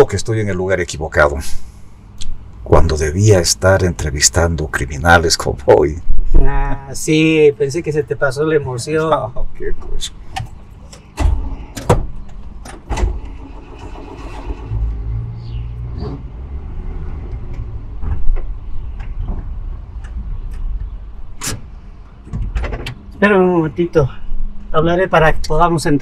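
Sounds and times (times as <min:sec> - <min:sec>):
sharp clunks and knocks: 0:10.3 - 0:13.2, 0:17.4 - 0:23.0.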